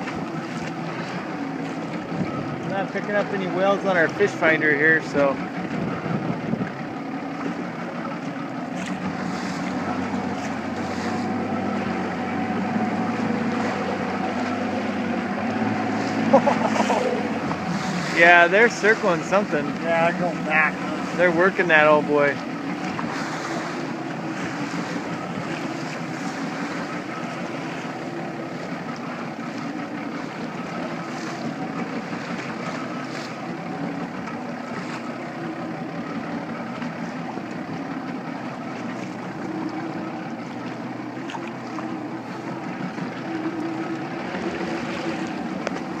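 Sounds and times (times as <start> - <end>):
motorboat engine humming: 0.0 - 46.0
water noise: 0.0 - 46.0
wind: 0.0 - 46.0.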